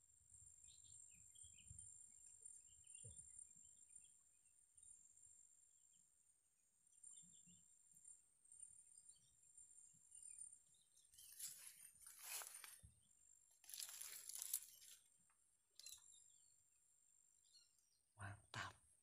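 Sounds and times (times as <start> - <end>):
faint bird chirps: 0.1 - 6.1, 6.9 - 15.1, 15.7 - 16.6
soft rustles: 11.2 - 12.9, 13.6 - 15.0.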